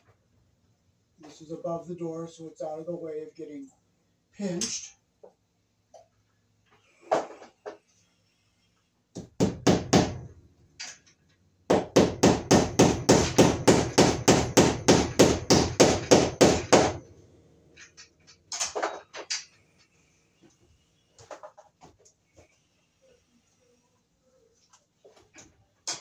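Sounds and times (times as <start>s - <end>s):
hammer striking staples into wood: 9.2s - 10.3s, 11.7s - 17.0s.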